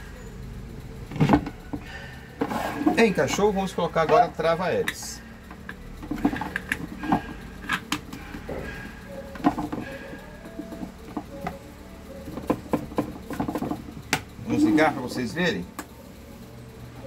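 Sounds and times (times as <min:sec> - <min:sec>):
plastic fan parts clicking: 0:02.4 - 0:08.6, 0:09.3 - 0:11.6.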